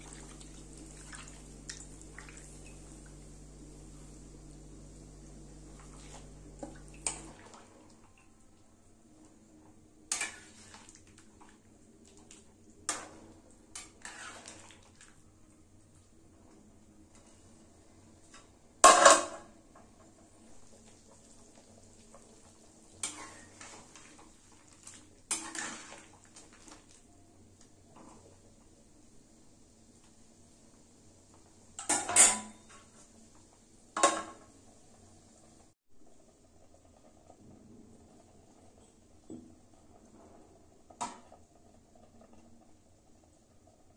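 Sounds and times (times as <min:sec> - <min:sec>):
ladle clanking and scraping pan: 0:13.8 - 0:14.7, 0:23.0 - 0:24.2, 0:25.3 - 0:26.2
metal cookware clattering: 0:31.8 - 0:32.8.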